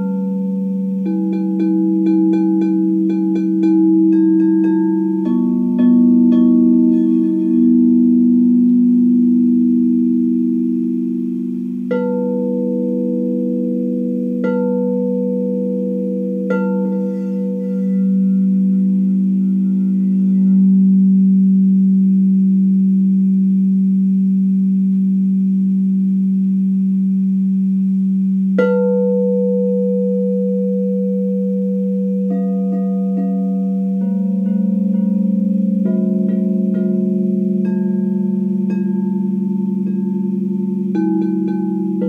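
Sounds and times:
singing bowls ringing: 0.0s - 24.8s, 28.4s - 42.0s
mallet striking bowl: 0.0s - 26.4s, 27.5s - 42.0s
higher bowl tones: 0.0s - 42.0s.

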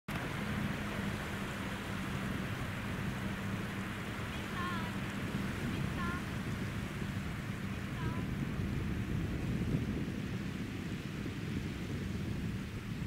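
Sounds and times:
low hum: 0.1s - 13.0s
steady beach hiss: 0.1s - 13.0s.

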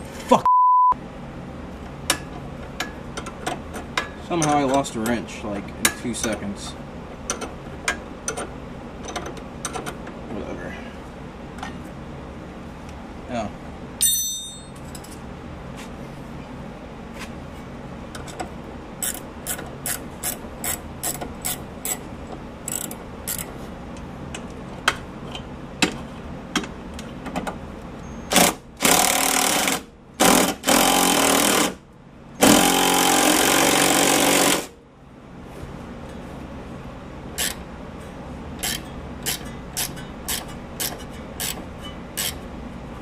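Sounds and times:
impact wrench hammering: 32.4s - 34.7s.

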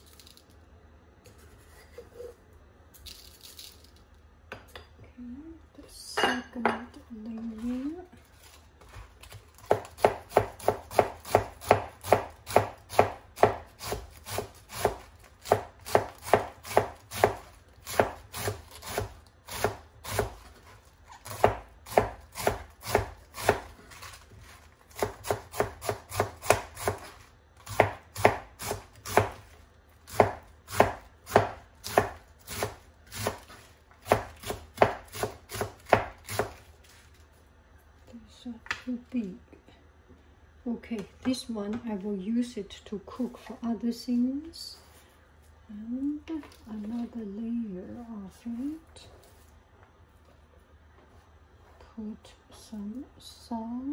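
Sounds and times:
knife chopping cabbage on board: 9.2s - 36.7s.

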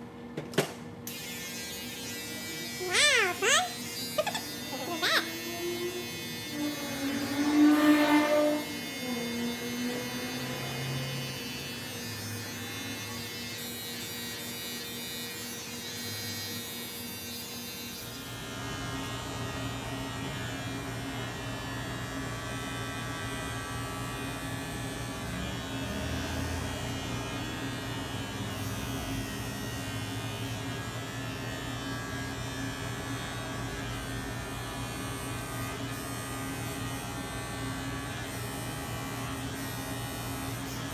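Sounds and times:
electric hair clippers buzzing: 0.6s - 40.9s.

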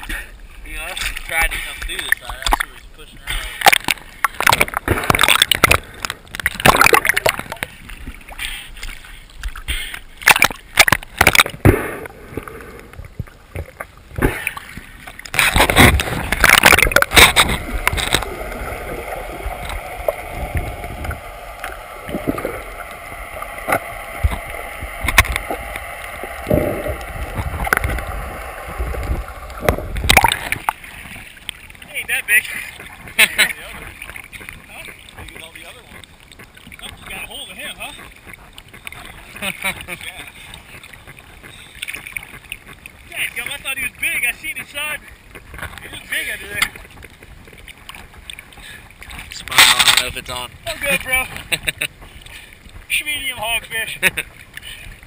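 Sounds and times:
faint steady hum: 0.0s - 35.1s
water sloshing and splashing: 0.0s - 55.0s
muffled underwater noise: 15.4s - 31.2s.

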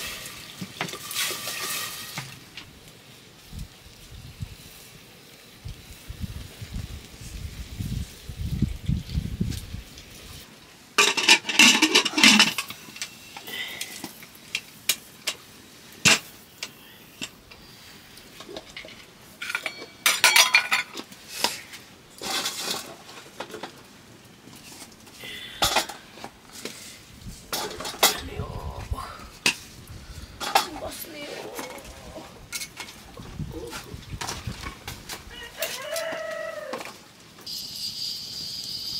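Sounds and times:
metal pots and utensils clattering: 0.0s - 2.4s, 11.0s - 13.2s, 16.0s - 17.4s, 18.3s - 23.8s, 25.5s - 26.3s, 27.5s - 28.4s, 30.4s - 33.1s.

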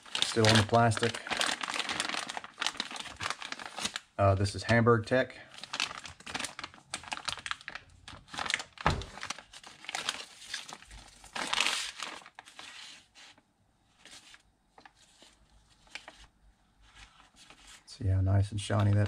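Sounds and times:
plastic bag crinkling: 0.0s - 4.7s, 5.5s - 12.8s
thump: 8.8s - 9.2s.

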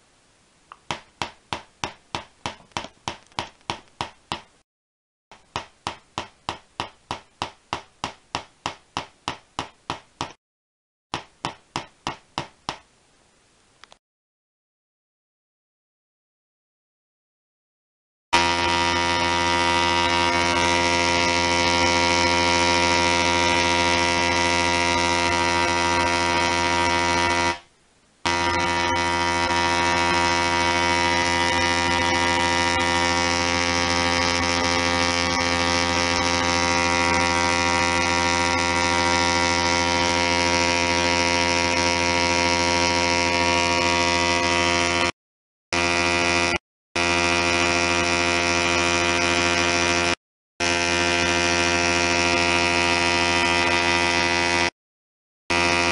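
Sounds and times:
tesla coil buzzing: 18.4s - 45.1s, 45.8s - 54.7s, 55.5s - 55.9s.

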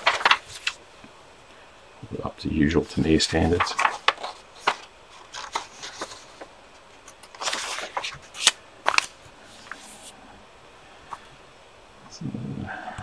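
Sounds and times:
paper pages rustling: 0.0s - 0.8s, 2.9s - 10.1s.

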